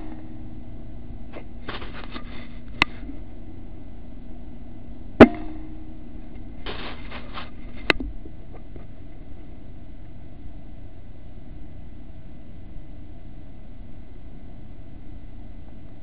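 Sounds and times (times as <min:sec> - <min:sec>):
short rattle: 0:06.4 - 0:09.0.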